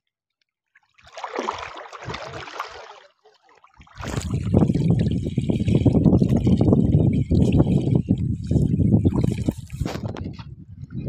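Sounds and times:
water splashing and sloshing: 0.7s - 11.0s
water running off net: 1.0s - 3.1s
wind buffeting microphone: 4.0s - 11.0s.

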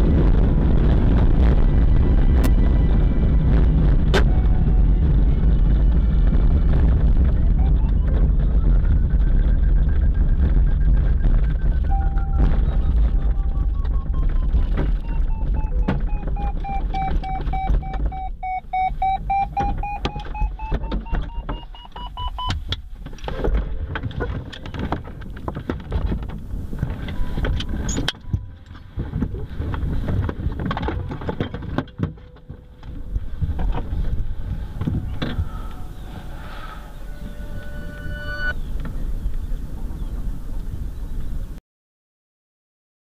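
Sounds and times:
electronic cockpit tone: 7.4s - 22.6s, 34.6s - 38.6s
knocks and clicks in cockpit: 11.4s - 33.9s
glider wheel rumbling over grass: 22.9s - 40.8s.

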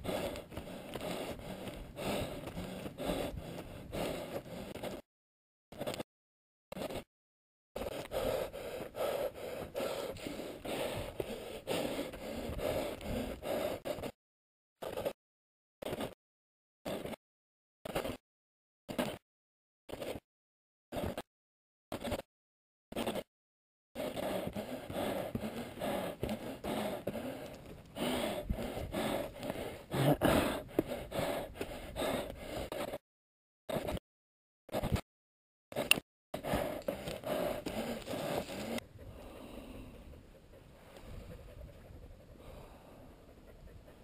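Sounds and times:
person panting: 0.0s - 5.0s, 7.8s - 14.2s, 24.0s - 33.0s, 35.8s - 44.0s
runner breathing hard: 0.0s - 5.0s, 6.7s - 7.1s, 7.8s - 14.2s, 24.0s - 33.0s, 35.8s - 44.0s.

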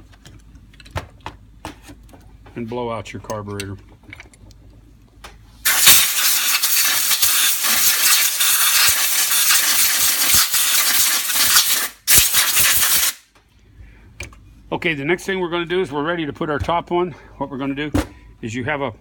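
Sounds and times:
compressed air hissing: 5.6s - 13.2s.

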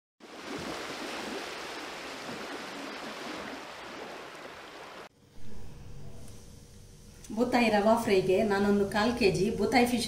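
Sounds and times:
rushing water: 0.2s - 5.1s.

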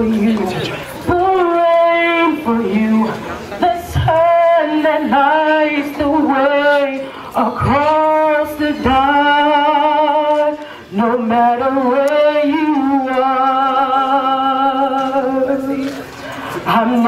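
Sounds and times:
person singing with vibrato: 0.0s - 17.0s.

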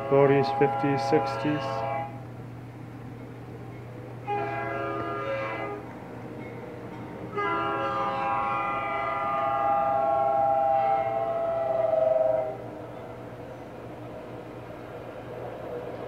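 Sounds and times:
locomotive air horn blasts: 0.0s - 2.3s, 4.2s - 5.9s, 7.3s - 12.7s
steady low hum: 0.0s - 16.0s.

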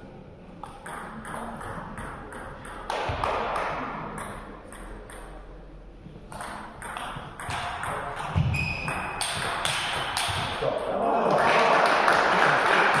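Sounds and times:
table tennis ball strikes: 0.6s - 5.4s, 6.3s - 10.9s.

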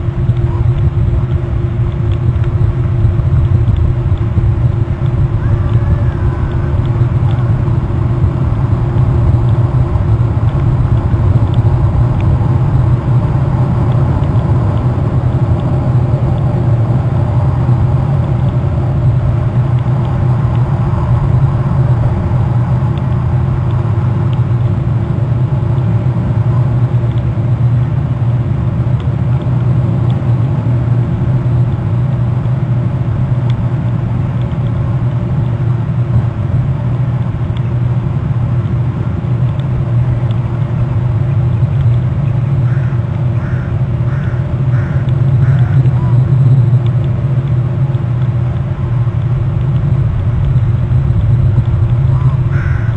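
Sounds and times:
steady low rumble: 0.0s - 52.9s
faint ticks: 0.2s - 16.6s, 41.5s - 52.9s.

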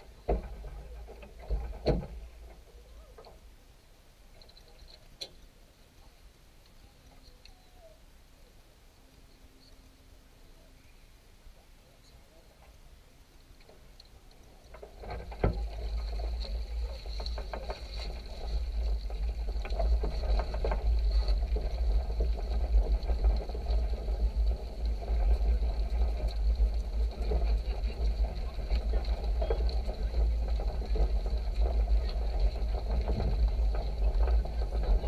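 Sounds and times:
trolley rolling and rattling: 0.0s - 3.2s, 13.7s - 35.0s
small knocks: 0.1s - 3.4s, 13.6s - 35.0s
low rumble: 14.4s - 35.0s.

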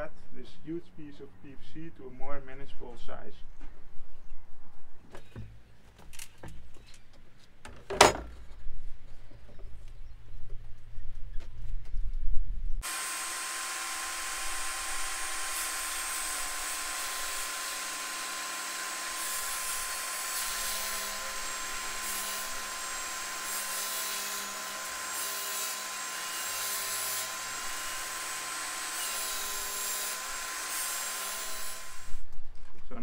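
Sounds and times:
table saw cutting plastic pipe: 12.8s - 32.3s.

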